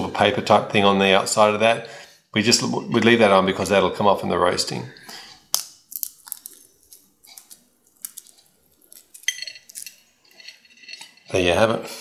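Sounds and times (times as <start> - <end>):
dry husks crackling on a plate: 5.0 - 11.5.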